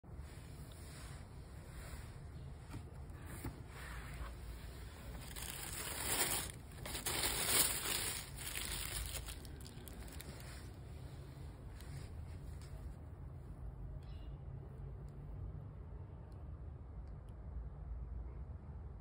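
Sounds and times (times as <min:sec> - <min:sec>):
tissue paper crinkling: 0:04.2 - 0:10.8.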